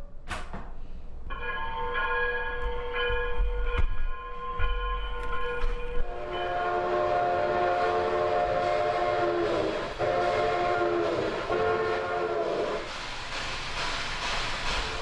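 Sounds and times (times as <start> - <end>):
model train horn blasts: 6.0 - 12.9.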